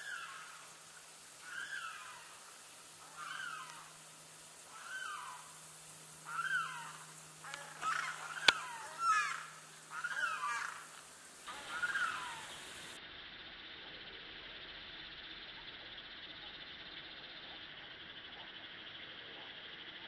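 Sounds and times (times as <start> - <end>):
bird calling: 0.0 - 13.0.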